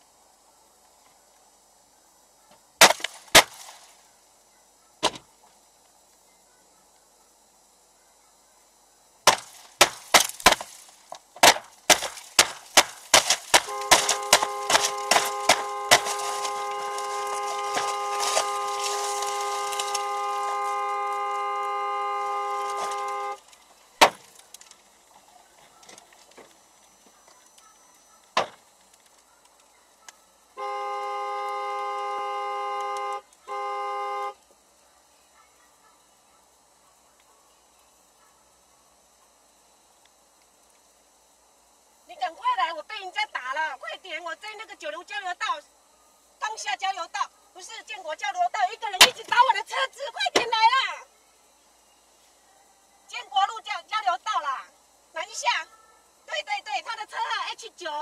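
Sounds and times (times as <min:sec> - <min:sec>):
hard blows striking a car: 0:11.4 - 0:20.8, 0:24.0 - 0:24.3
car horn sounding steadily: 0:13.5 - 0:23.5, 0:30.5 - 0:34.6.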